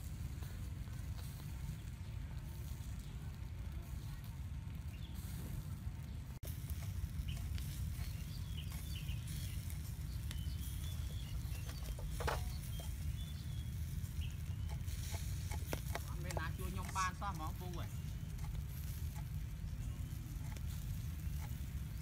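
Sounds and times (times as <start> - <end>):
steady low rumble: 0.0 - 22.0
bird chirps: 7.2 - 18.6.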